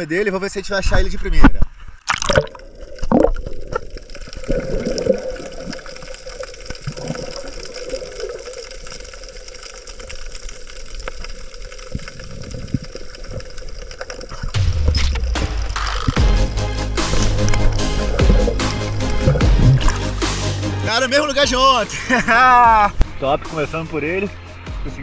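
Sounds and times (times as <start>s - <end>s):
water sloshing and gurgling: 1.7s - 20.9s
water splash: 2.0s - 9.0s, 14.3s - 20.9s.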